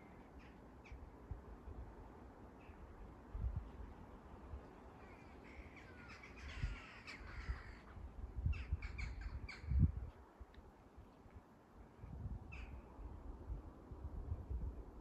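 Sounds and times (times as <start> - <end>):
birds calling: 4.9 - 9.9.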